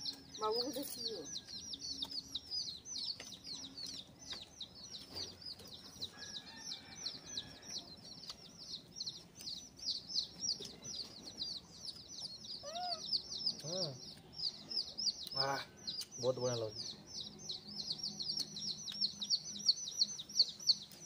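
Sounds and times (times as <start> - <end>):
small birds chirping: 0.0 - 21.0.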